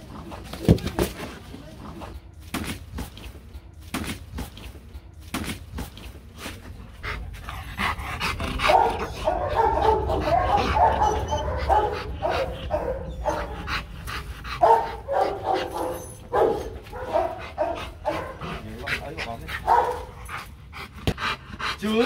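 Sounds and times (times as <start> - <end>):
dog barking: 8.6 - 13.8, 14.6 - 20.2.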